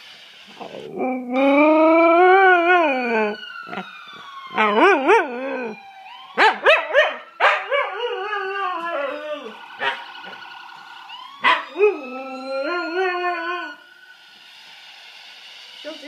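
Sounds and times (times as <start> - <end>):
dog howling and yipping: 0.6 - 3.9, 4.5 - 5.8, 6.4 - 10.0, 11.4 - 13.8.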